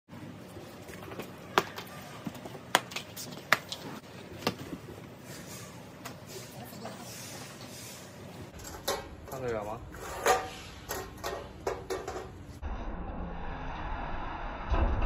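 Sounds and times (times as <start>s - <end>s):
sharp clicks and knocks: 10.9s - 12.4s.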